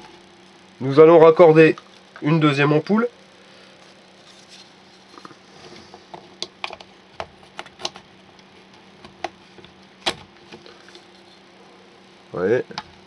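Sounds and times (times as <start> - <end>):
faint steady hum: 0.0 - 13.0
plug and wiring clicks: 6.4 - 8.0.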